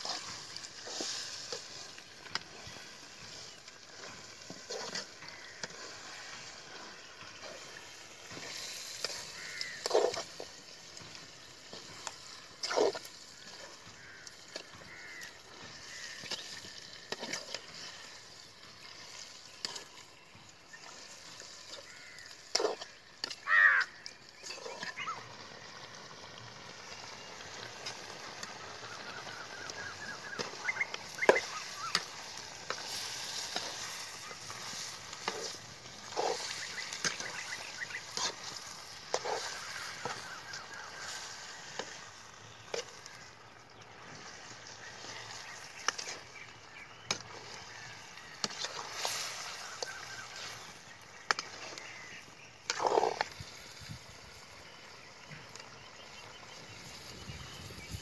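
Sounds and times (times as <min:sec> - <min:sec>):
low sizzle: 0:00.0 - 0:58.0
metal spoon scraping pan: 0:32.7 - 0:40.3.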